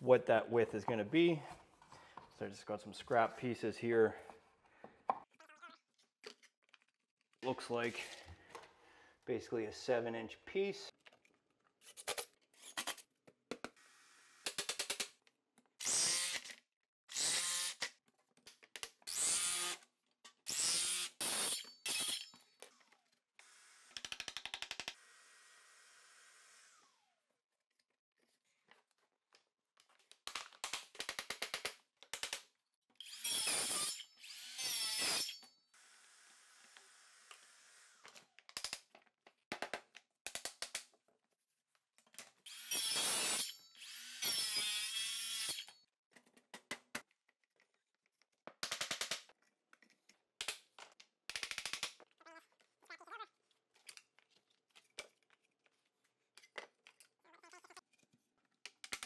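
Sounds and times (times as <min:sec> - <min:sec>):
circular saw cutting planks: 0:33.0 - 0:38.1, 0:42.5 - 0:45.8.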